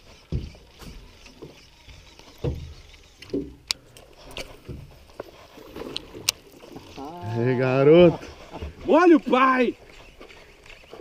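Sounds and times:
fish splashing: 0.0s - 7.4s.

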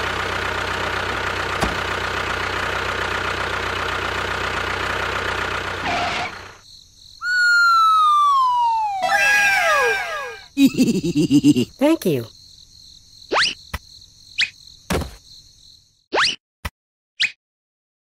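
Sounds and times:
falling whistle-like tones: 7.2s - 10.5s.

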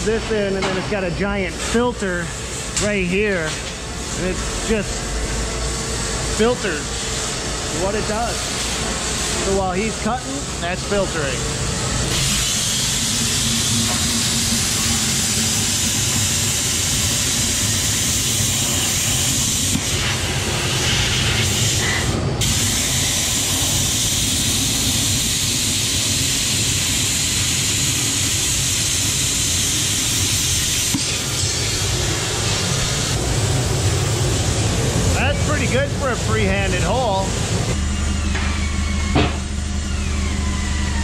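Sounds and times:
plasma cutter hissing: 12.0s - 37.8s
low hum: 37.2s - 41.0s.

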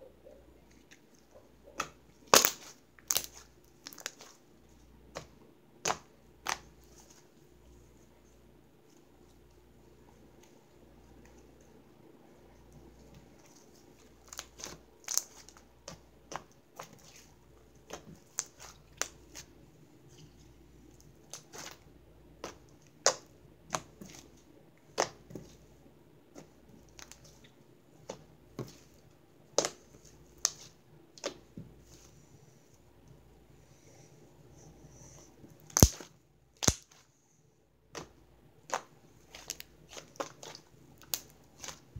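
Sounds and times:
slime clicks and pops: 36.6s - 36.8s.

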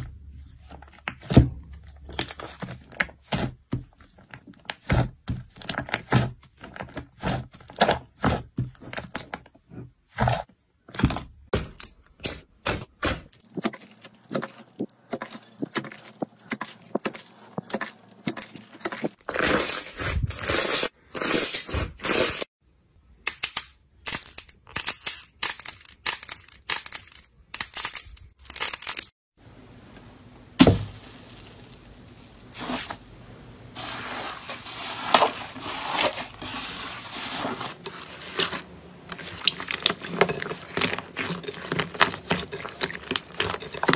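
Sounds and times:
slime crunching rustle: 33.8s - 43.9s.

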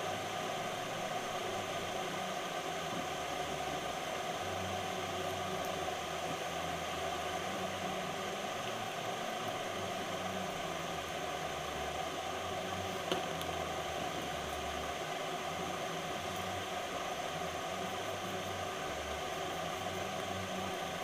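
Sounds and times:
background hiss: 0.0s - 21.0s.

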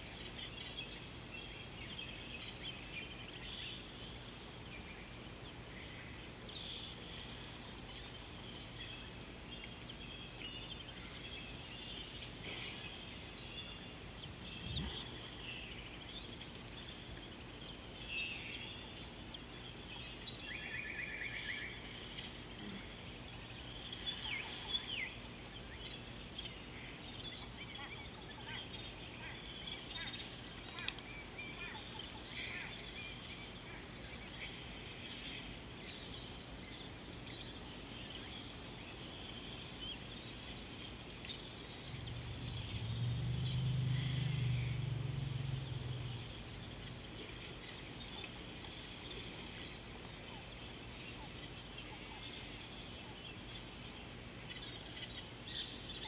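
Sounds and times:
low rumble: 41.8s - 47.8s.

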